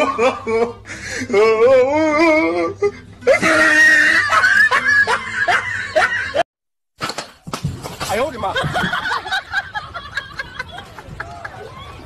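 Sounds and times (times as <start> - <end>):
person laughing hard: 0.0 - 1.0, 3.3 - 6.4.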